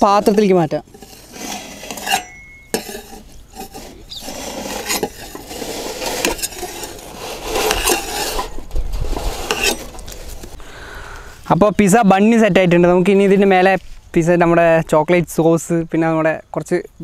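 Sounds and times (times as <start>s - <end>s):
metal cookware scraping and clinking: 0.9s - 8.6s, 9.3s - 10.0s.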